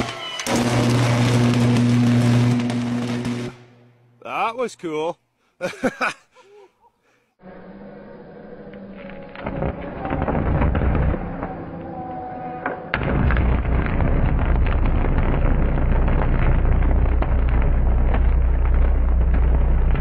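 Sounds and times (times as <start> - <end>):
electrical arcing crackles: 0.0 - 3.9, 9.0 - 12.0, 12.9 - 20.0
deep steady hum: 15.6 - 20.0.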